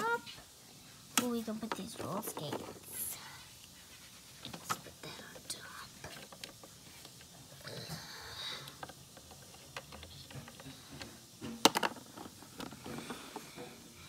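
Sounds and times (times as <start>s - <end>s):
plastic toys clicking and tapping: 1.2s - 3.0s, 4.5s - 7.9s, 8.6s - 13.5s.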